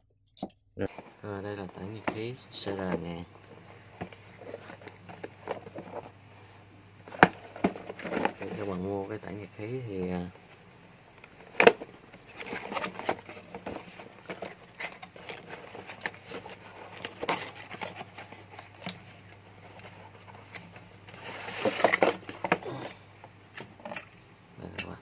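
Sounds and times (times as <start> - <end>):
cardboard box rustling and scraping: 0.9 - 9.0, 11.4 - 23.0.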